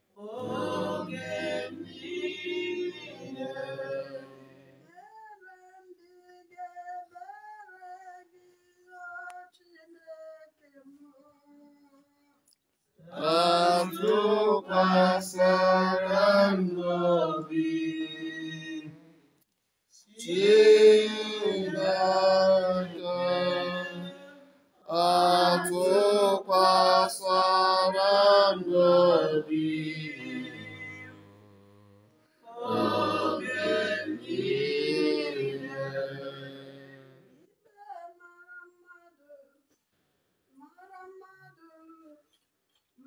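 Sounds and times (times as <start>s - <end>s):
voices singing a religious chant: 0.0s - 4.9s, 13.0s - 19.1s, 20.0s - 37.4s.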